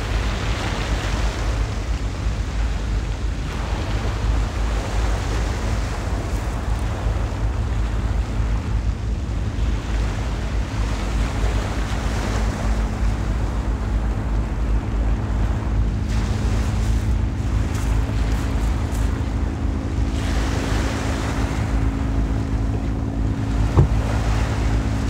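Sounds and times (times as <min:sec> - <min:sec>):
waves washing onto pebbles: 0:00.0 - 0:08.6, 0:16.0 - 0:22.4
boat engine drone: 0:00.0 - 0:25.0
wind buffeting microphone: 0:00.0 - 0:25.0.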